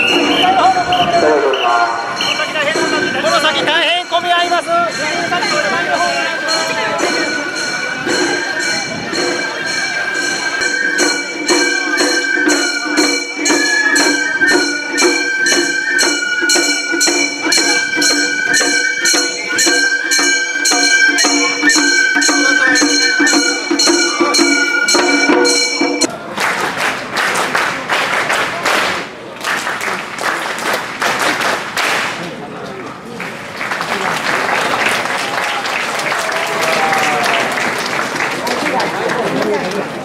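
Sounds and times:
flute melody: 0.0s - 4.6s, 7.9s - 26.1s
crowd applauding: 26.0s - 40.0s.

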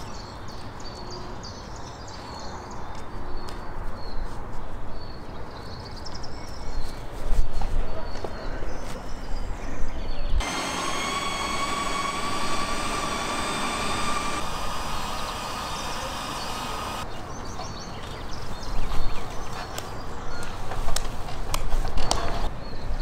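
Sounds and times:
meat grinder motor whine: 10.4s - 17.0s.

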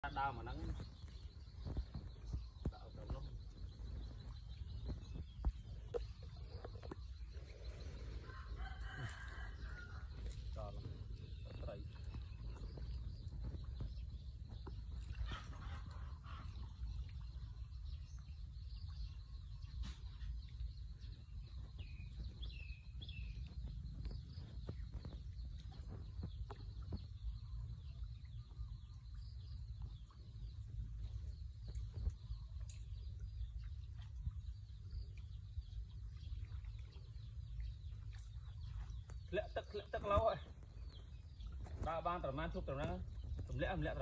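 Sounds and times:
bird chirps: 0.0s - 44.0s
wind rumble on microphone: 0.0s - 44.0s.

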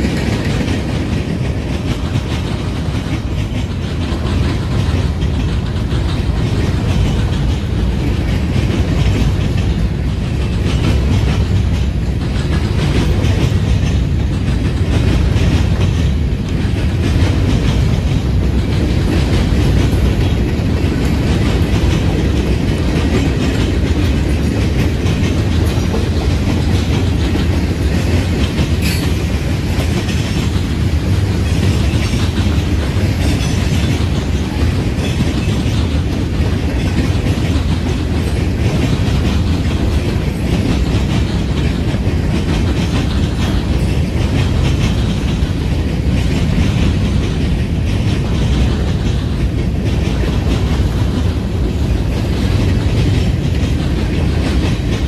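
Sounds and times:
freight train rumbling past: 0.0s - 55.0s
wheels clicking over rail joints: 0.0s - 55.0s.

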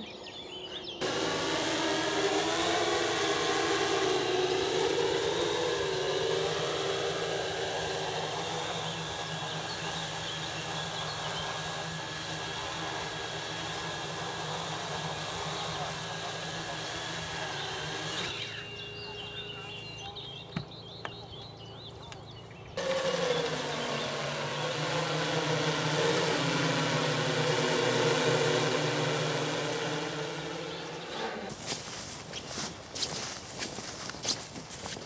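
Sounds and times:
drone propellers humming: 1.0s - 21.0s, 22.6s - 32.8s.

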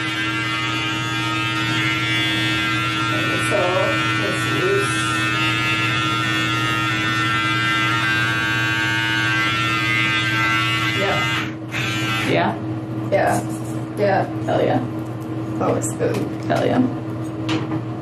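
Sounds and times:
electric hair clippers buzzing: 0.0s - 14.1s.

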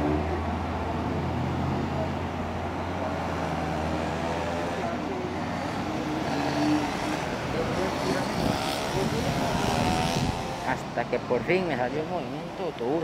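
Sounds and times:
car and bus engines passing: 0.0s - 13.0s.

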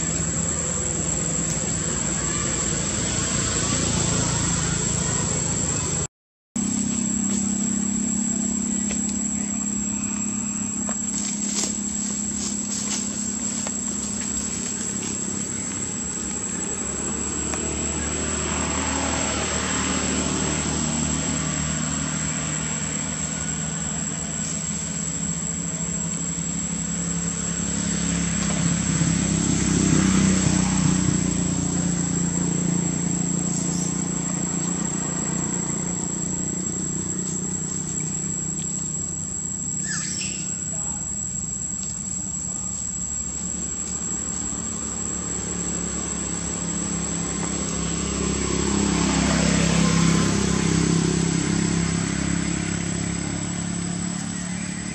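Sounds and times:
steady engine hum: 0.0s - 54.9s
vehicles passing: 0.0s - 54.9s
thin high-pitched whine: 6.6s - 13.8s.

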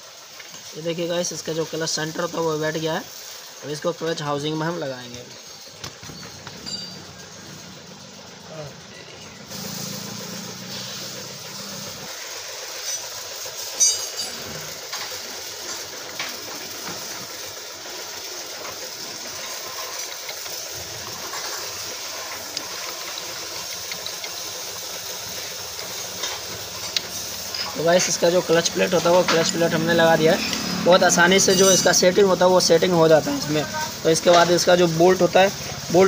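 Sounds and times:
background hiss: 0.0s - 36.0s
metal clutch plates clinking: 6.0s - 7.4s.

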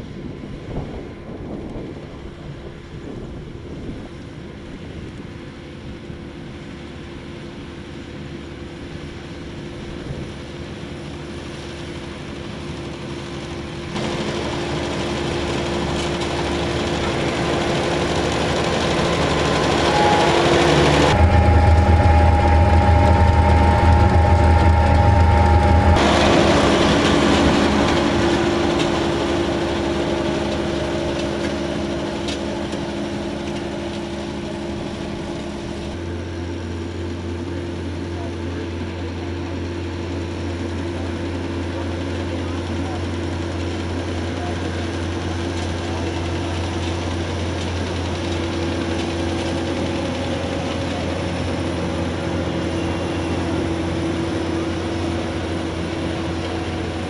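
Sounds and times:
tractor engine running: 0.0s - 57.0s
baler high whine: 12.2s - 43.1s, 44.1s - 57.0s.

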